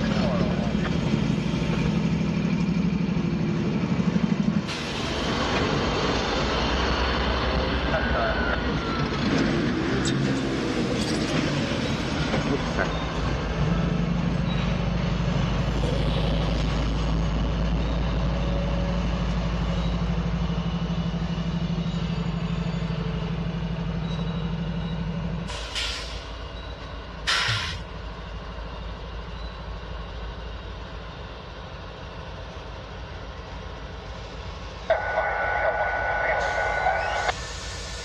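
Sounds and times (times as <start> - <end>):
locomotive diesel engine drone: 0.0 - 38.0
air brake hisses: 25.5 - 26.4, 27.3 - 27.9, 37.3 - 38.0.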